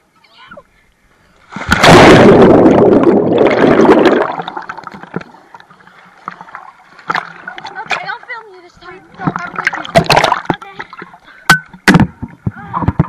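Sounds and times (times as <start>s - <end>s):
muffled underwater water rush: 1.2s - 11.5s
bubbles crackling: 1.5s - 8.2s, 8.8s - 11.2s.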